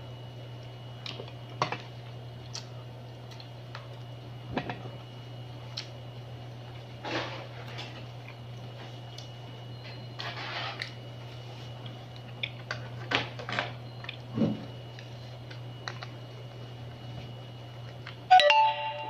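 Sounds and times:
steady low hum: 0.0s - 19.0s
crab shell cracking and chewing: 2.4s - 4.1s, 11.8s - 13.0s.

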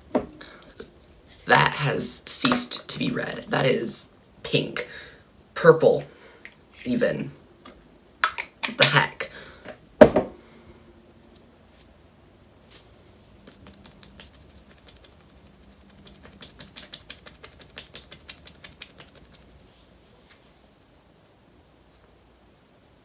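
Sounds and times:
sponge patting skin: 13.4s - 19.8s.

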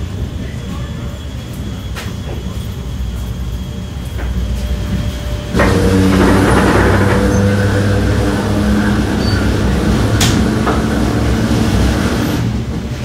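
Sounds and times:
traction motor hum: 5.0s - 12.5s.

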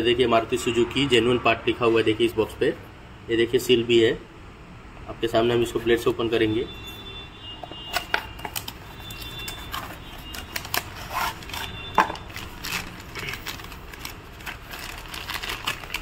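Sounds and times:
plastic bag crinkling: 8.0s - 16.0s
cardboard box tearing: 9.4s - 16.0s.

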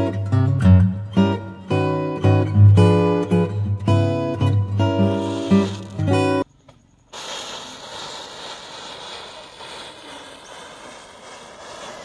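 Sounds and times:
matches flaring with a hiss: 4.8s - 12.0s.

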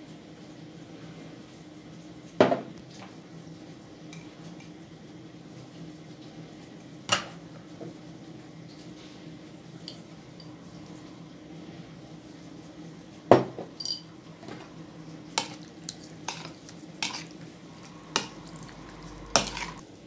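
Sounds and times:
metal spoon clinking on dishes: 13.8s - 14.1s, 15.4s - 17.4s.

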